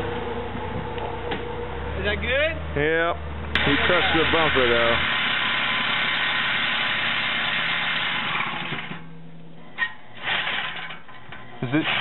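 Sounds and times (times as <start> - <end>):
power tool running: 3.6 - 9.1, 11.6 - 12.0.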